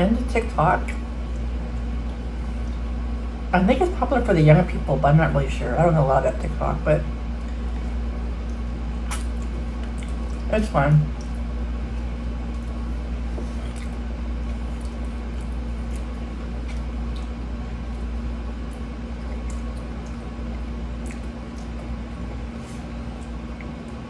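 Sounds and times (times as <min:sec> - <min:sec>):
steady low hum: 0:00.0 - 0:24.0
person chewing food: 0:07.4 - 0:10.5, 0:11.1 - 0:24.0.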